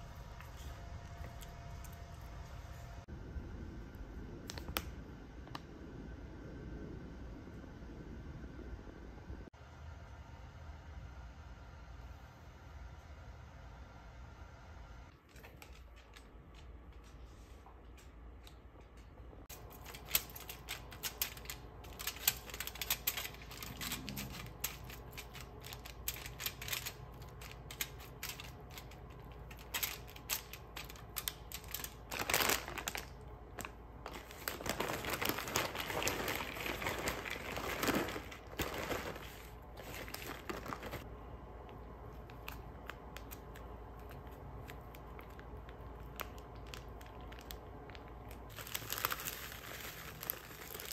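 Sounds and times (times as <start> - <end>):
low steady hum: 0.0 - 50.9
aluminium foil crinkling: 18.9 - 41.1, 42.1 - 50.9
packet being torn open: 19.5 - 41.0, 42.3 - 50.9
plastic packaging rustling: 19.5 - 41.1, 42.1 - 50.9.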